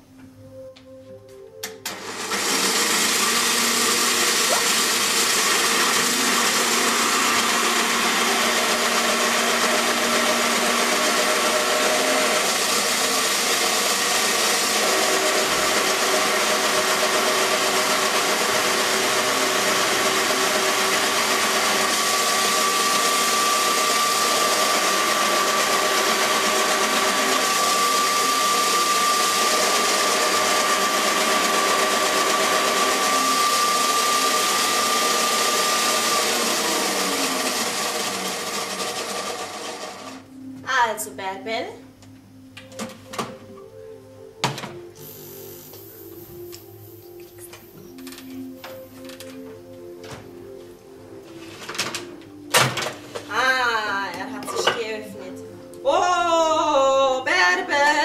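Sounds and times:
electric citrus press running: 1.7s - 40.4s, 51.6s - 53.3s
thin motor whine: 1.8s - 40.5s.

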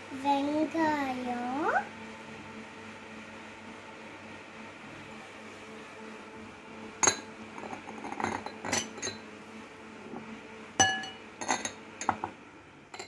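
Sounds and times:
steady low hum: 0.0s - 13.0s
glass bowls clinking: 7.0s - 9.2s, 10.8s - 12.3s.

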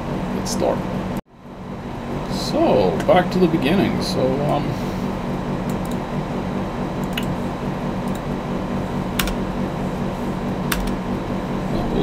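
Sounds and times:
air conditioner running: 0.0s - 12.0s
keyboard keystrokes: 7.0s - 7.3s, 9.2s - 9.4s, 10.7s - 11.0s.

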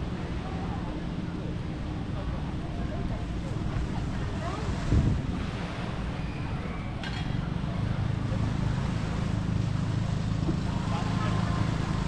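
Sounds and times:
wind buffeting the microphone: 3.0s - 12.0s.

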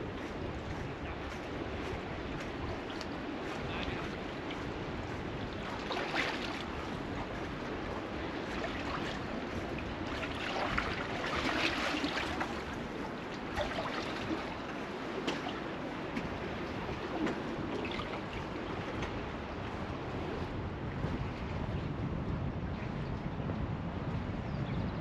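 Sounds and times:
waves lapping against pilings: 0.0s - 23.3s
sharp water splashes: 5.6s - 6.8s, 10.1s - 15.6s.

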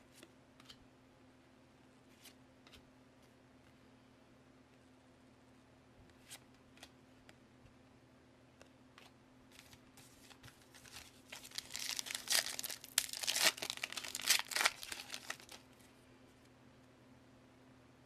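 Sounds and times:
foil wrapper tearing and crinkling: 10.8s - 15.6s.

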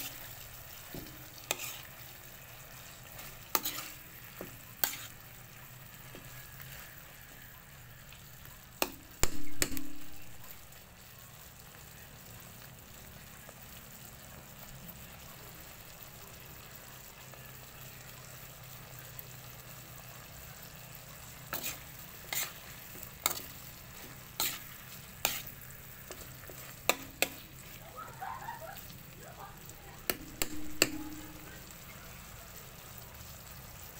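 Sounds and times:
low steady sizzle: 0.0s - 33.9s
metal utensil clinking on pan: 25.3s - 27.6s, 30.0s - 31.6s.

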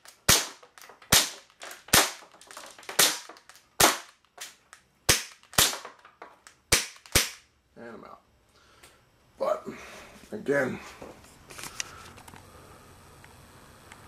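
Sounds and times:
airsoft pistol shots: 0.2s - 6.0s, 6.7s - 7.4s.

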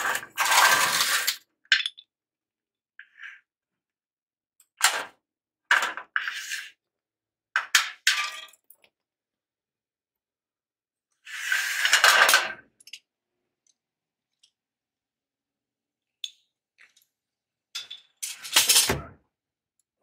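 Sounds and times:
metal parts clinking on concrete: 17.7s - 19.0s.

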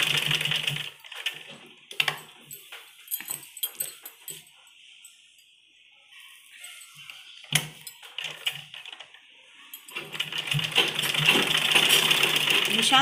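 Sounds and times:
sewing machine clatter: 0.0s - 2.1s, 9.9s - 13.0s.

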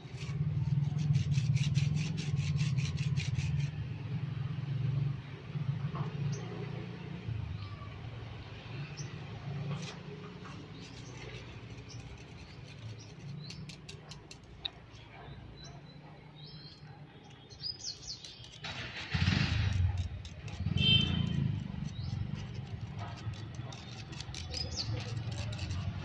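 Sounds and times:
small birds chirping: 8.6s - 18.7s, 19.9s - 26.0s.

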